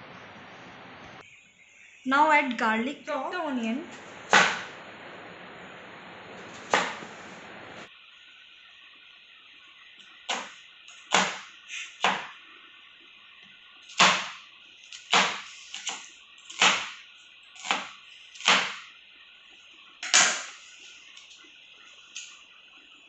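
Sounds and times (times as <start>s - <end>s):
knife chopping on wooden board: 4.3s - 4.7s, 6.6s - 7.1s, 11.1s - 11.4s, 12.0s - 12.3s, 14.0s - 14.4s, 15.1s - 17.0s, 17.6s - 18.8s.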